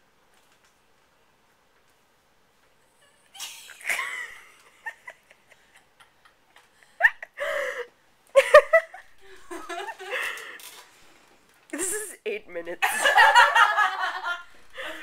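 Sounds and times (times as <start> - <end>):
stifled giggling and laughter: 3.3 - 10.6.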